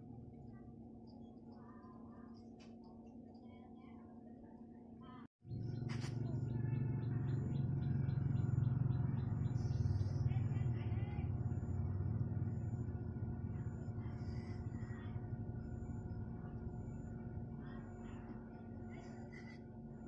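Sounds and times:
low mechanical hum: 0.0 - 20.0
birds chirping: 5.5 - 18.9.

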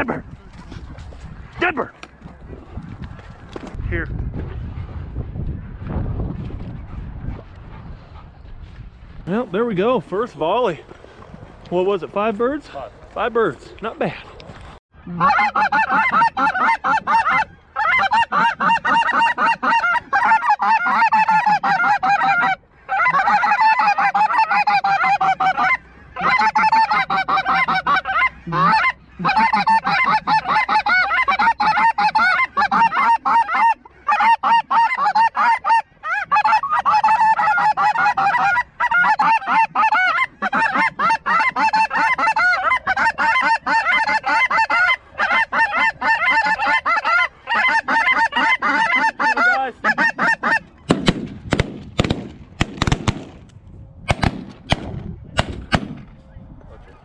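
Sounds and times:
geese honking: 15.1 - 51.0.

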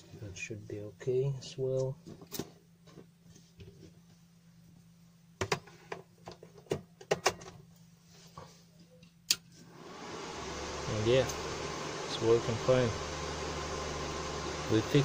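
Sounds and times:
cooling fan whirring: 9.6 - 15.0.

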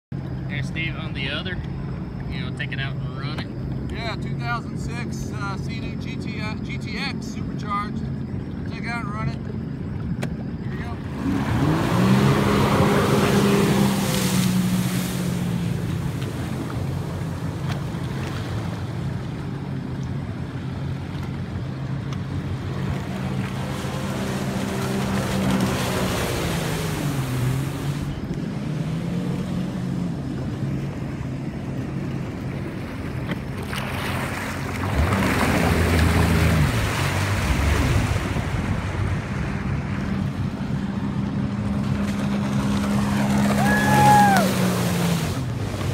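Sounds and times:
boat engine running steadily: 0.1 - 45.9
personal watercraft engine: 0.1 - 45.9
water rushing: 0.1 - 45.9
wind on the microphone: 34.8 - 41.1.

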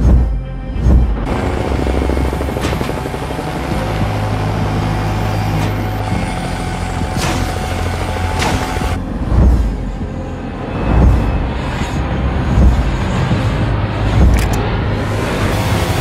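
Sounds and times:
helicopter rotor beating: 0.0 - 16.0
deep booms: 8.5 - 14.8.

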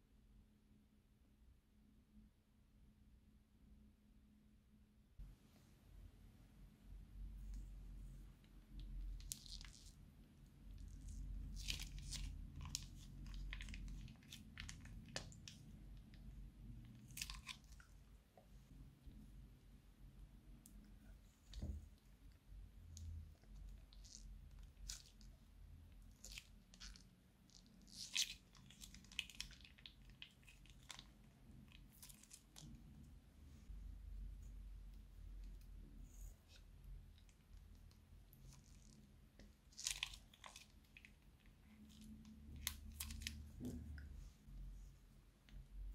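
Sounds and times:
faint low hum: 0.0 - 45.9
plastic piping bag crinkling: 10.8 - 16.2, 16.9 - 17.9, 26.1 - 32.8, 39.6 - 43.6
slime crackling and popping: 10.8 - 16.3, 16.9 - 17.9, 26.1 - 32.8, 37.2 - 43.6.

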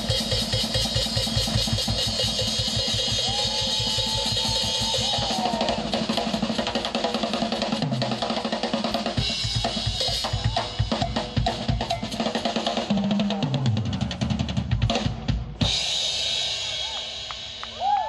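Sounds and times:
cymbals: 0.0 - 8.1
drum kit solo: 0.0 - 18.0.

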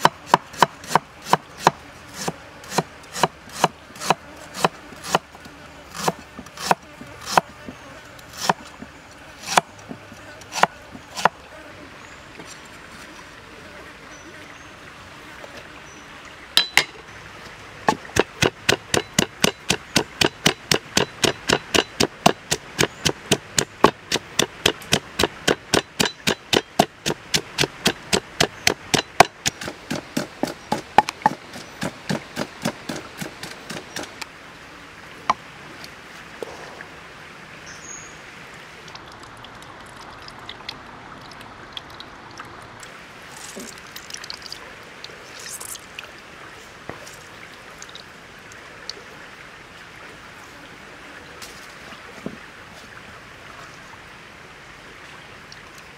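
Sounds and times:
wooden pestle pounding in mortar: 18.1 - 33.8.

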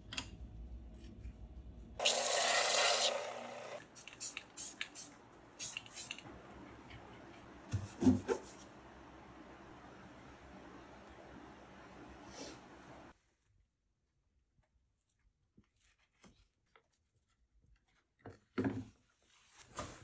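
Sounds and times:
spray can hissing: 4.0 - 6.3.

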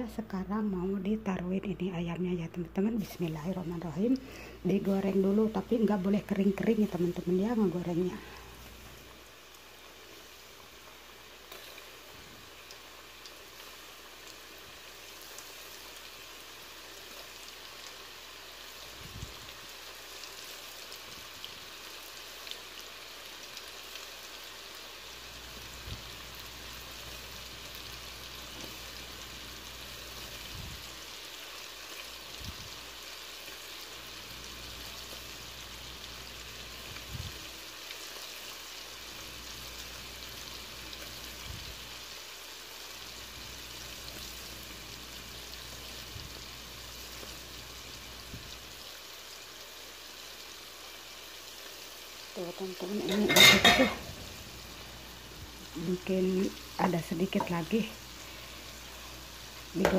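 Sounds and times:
oil sizzling in a wok: 1.8 - 59.9
crackles and pops: 10.5 - 24.1.

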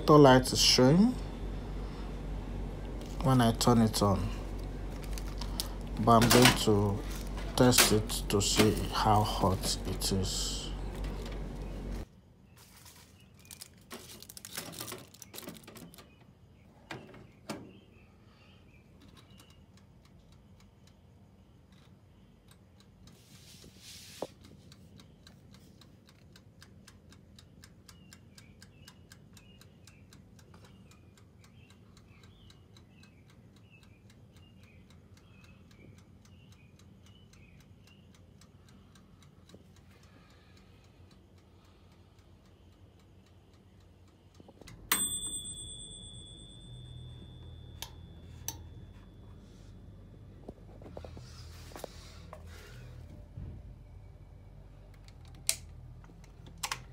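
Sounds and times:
clockwork timer ticking: 0.0 - 12.0, 18.6 - 23.7, 24.3 - 50.4
handling knocks and clatter: 12.8 - 16.2.

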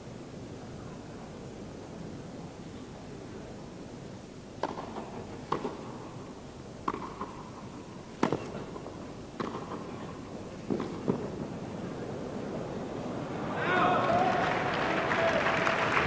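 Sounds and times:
tennis ball pocks: 4.6 - 6.0, 6.8 - 7.6, 8.2 - 11.4.

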